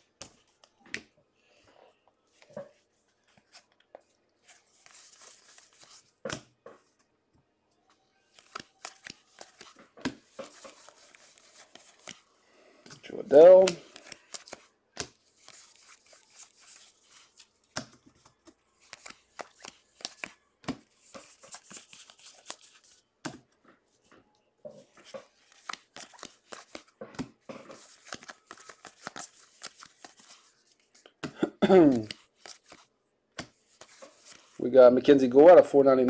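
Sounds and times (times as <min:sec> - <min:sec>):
trading cards flipped through: 0:03.3 - 0:06.4, 0:08.3 - 0:12.2, 0:12.9 - 0:23.4, 0:24.9 - 0:34.6.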